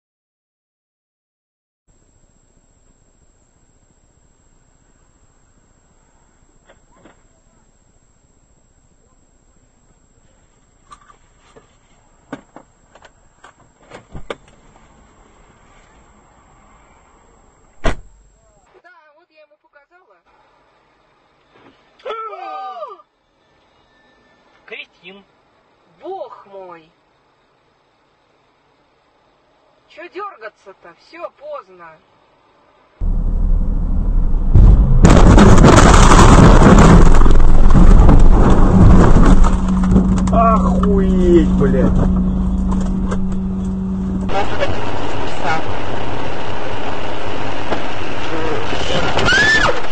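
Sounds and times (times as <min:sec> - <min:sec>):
road and engine rumble: 0:09.5 - 0:18.4, 0:33.0 - 0:49.9
low car cabin hum: 0:33.0 - 0:49.2
harsh crackling crash noise: 0:33.0 - 0:49.9.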